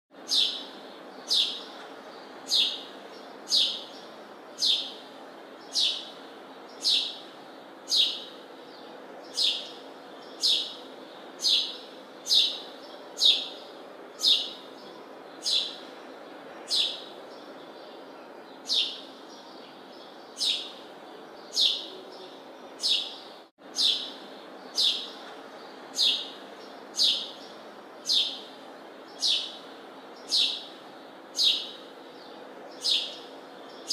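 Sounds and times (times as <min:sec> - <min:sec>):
bird chirping: 0:00.2 - 0:33.9.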